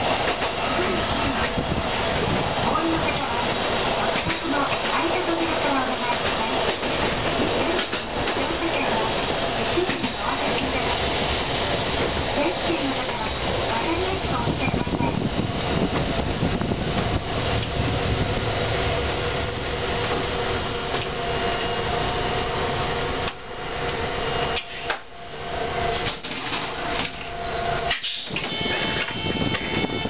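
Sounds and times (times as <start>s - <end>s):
tram wheels rumbling on rail: 0.0s - 30.0s.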